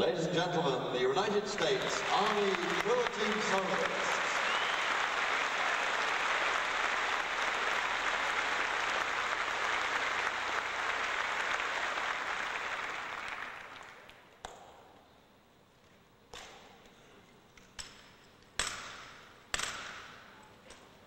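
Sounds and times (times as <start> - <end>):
audience applauding: 1.6 - 14.2.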